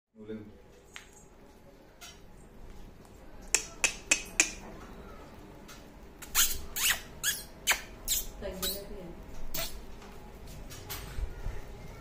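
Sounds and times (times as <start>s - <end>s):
puppies squeaking and yelping: 6.2s - 8.8s.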